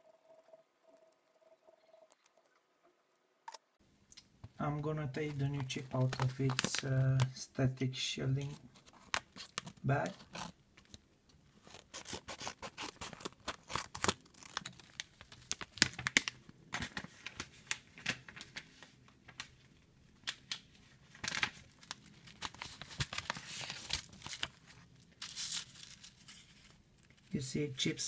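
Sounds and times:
foil bag crinkling: 5.6 - 7.3, 21.2 - 27.3.

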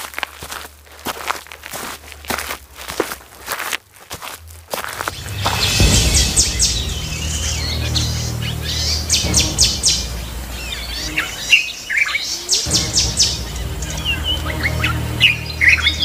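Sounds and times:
birds chirping and trilling: 4.9 - 16.0.

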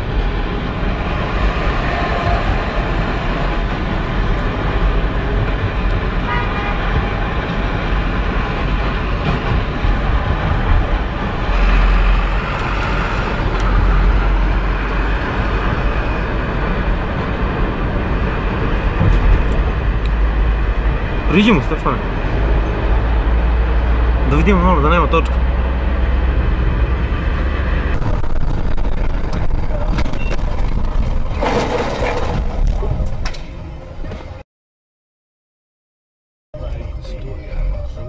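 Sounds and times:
car engine and road noise: 0.0 - 34.4, 36.6 - 38.0
car horn toots: 6.3 - 7.1.

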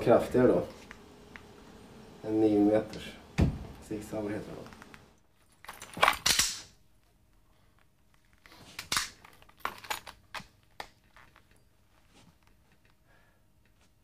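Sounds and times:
pistol holster rustle and click: 4.7 - 13.0.

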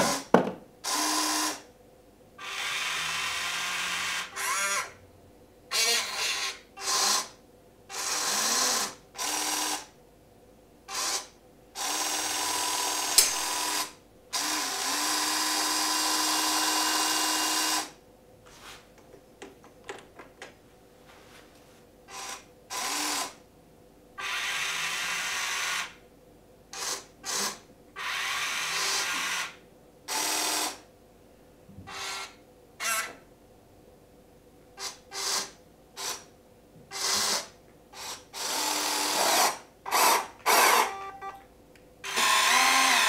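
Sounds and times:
electric motors whining: 38.3 - 41.4, 42.0 - 43.0.

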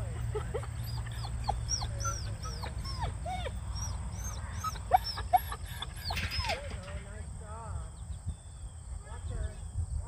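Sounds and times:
dog whining and yipping: 0.5 - 6.8.

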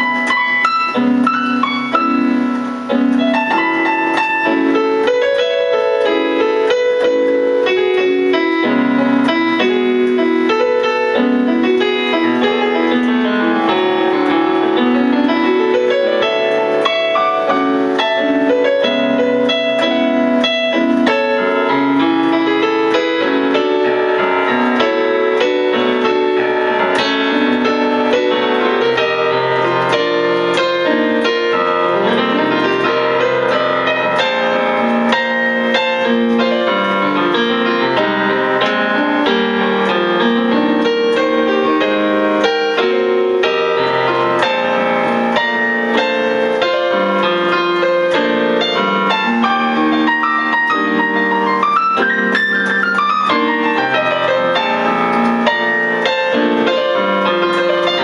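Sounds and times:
jazz piano playing: 0.0 - 58.0.

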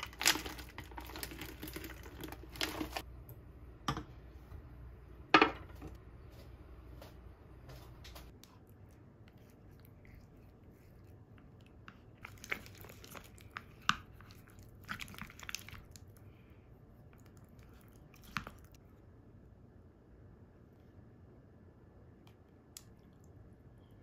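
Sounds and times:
spoon stirring crunchy yogurt: 0.0 - 3.1, 8.3 - 18.8.

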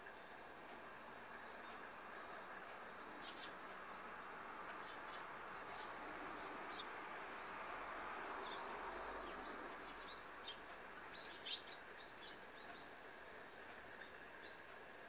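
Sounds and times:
steady background hiss: 0.0 - 15.0
sparrows chirping: 1.4 - 4.1, 4.8 - 6.9, 8.3 - 13.1.

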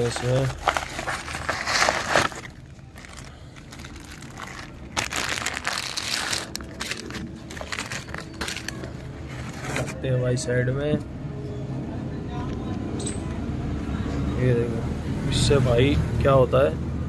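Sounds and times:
packaging crinkling and rustling: 0.0 - 10.0.

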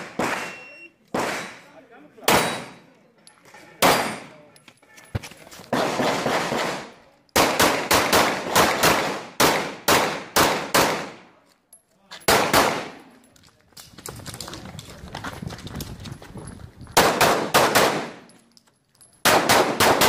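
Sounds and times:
pistol shots echoing: 0.0 - 1.6, 5.7 - 11.2, 12.3 - 13.0, 17.0 - 18.3, 19.2 - 20.0.

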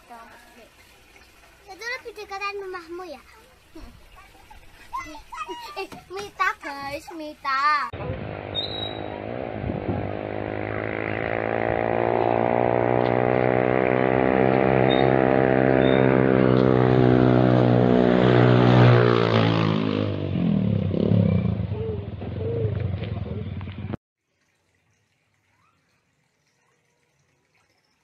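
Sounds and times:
voices calling out: 0.0 - 12.6
vehicle engine running: 8.0 - 24.0.

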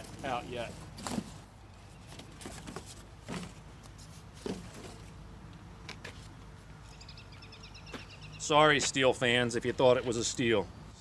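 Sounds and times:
bird chirping: 6.8 - 8.6.

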